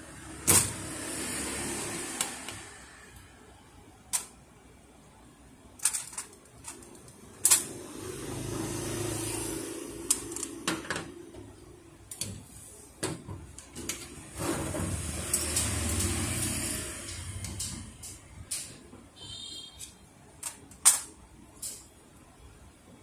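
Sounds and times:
low mechanical hum: 0.0 - 23.0
metal and plastic parts clicking: 4.1 - 4.4, 5.8 - 7.7, 19.8 - 21.9.

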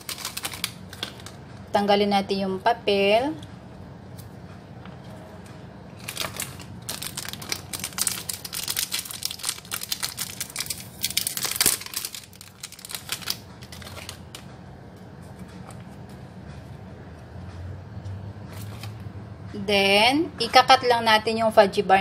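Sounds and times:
paper and plastic wrapper crinkling: 0.0 - 1.4, 6.0 - 14.5.

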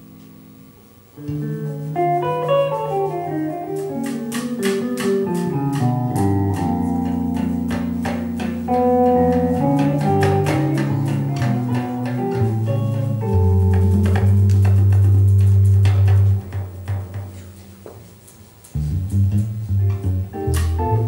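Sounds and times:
plucked guitar melody: 1.2 - 17.4, 18.8 - 21.0
ticking percussion beat: 1.6 - 17.3
bass line: 8.7 - 16.5, 18.8 - 21.0.

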